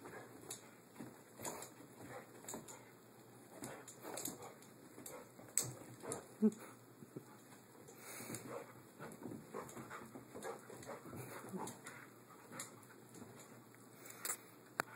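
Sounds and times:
dog panting: 0.0 - 13.5
dog scuffling on carpet: 0.0 - 13.7.

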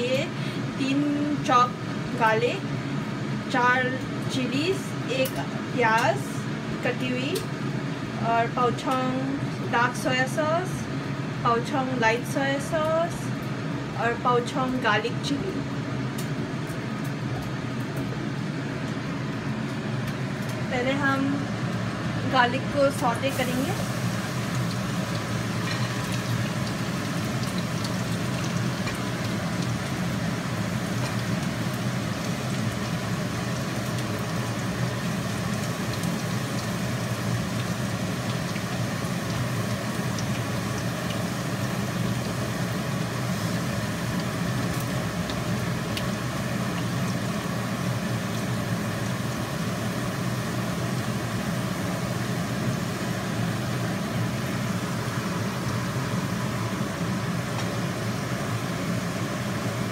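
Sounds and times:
steady low hum: 0.0 - 59.9
garlic sizzling in hot oil: 11.8 - 59.9.

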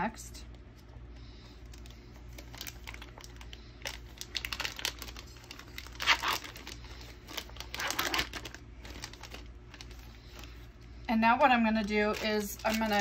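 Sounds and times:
plastic wrapper crinkling and tearing: 1.6 - 10.7, 11.5 - 13.0.

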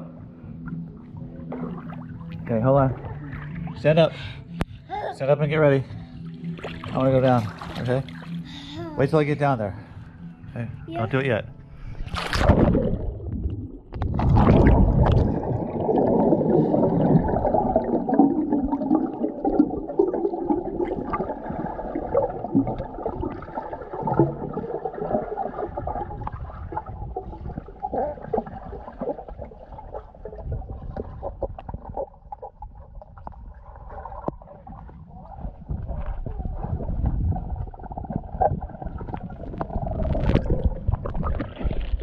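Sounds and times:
splash: 6.6 - 8.4, 12.0 - 17.8
underwater rush and bubbles: 11.9 - 42.0.

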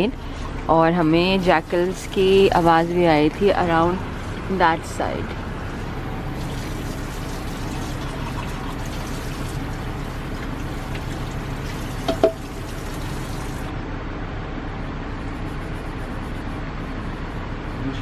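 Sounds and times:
tap water running into sink: 6.3 - 13.7.

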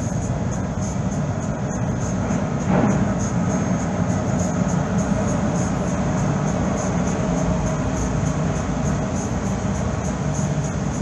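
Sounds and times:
low engine rumble: 0.0 - 11.0.

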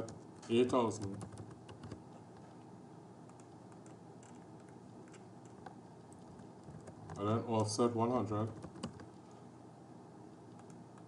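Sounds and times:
keyboard keystrokes: 0.0 - 2.0, 3.3 - 7.8, 8.4 - 9.1.

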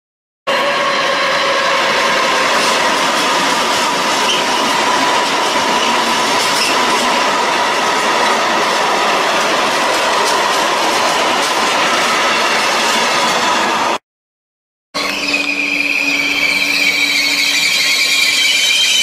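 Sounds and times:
high wheel squeal: 0.5 - 7.5, 15.0 - 19.0
train wheels rumbling on rail: 0.5 - 14.0.

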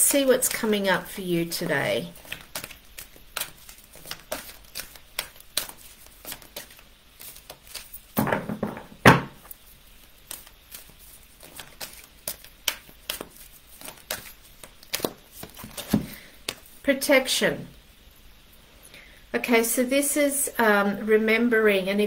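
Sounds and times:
cards being shuffled: 0.1 - 16.8.

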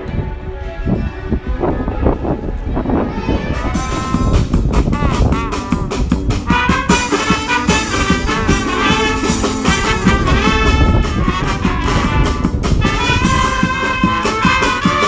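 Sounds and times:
brass band playing: 3.5 - 15.0
snare drum beat: 3.8 - 15.0.

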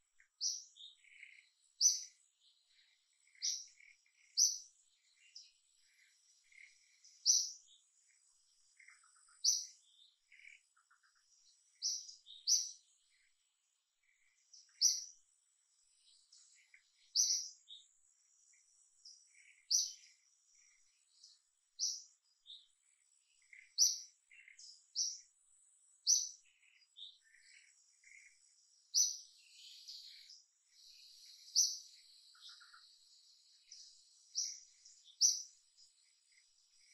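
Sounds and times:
faint insect whine: 0.0 - 36.9
other birds calling: 0.0 - 36.9.

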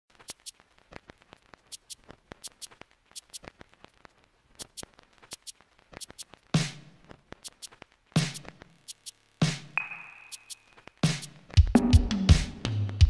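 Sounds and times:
electronic clicks and ticks: 0.1 - 6.5, 7.3 - 11.4.

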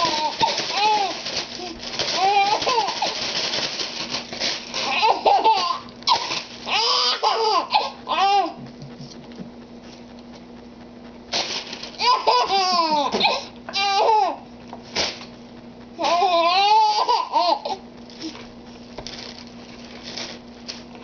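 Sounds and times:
baby laughing: 4.8 - 8.6, 12.0 - 14.4, 16.0 - 17.8.

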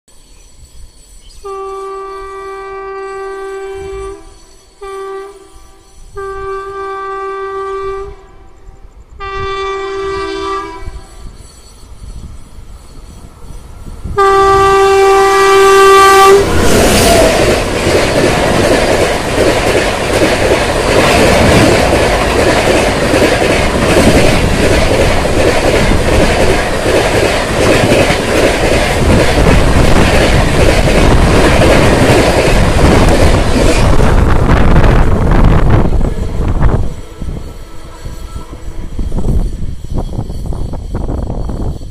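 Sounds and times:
train rushing past: 0.1 - 41.9
locomotive horn blasts: 1.4 - 8.5, 9.2 - 11.2, 14.2 - 17.2, 37.0 - 39.3.

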